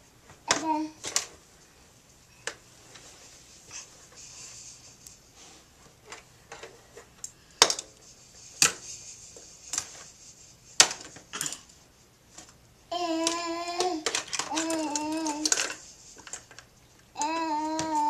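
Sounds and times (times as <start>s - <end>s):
plastic toy parts clicking: 13.1s - 16.6s.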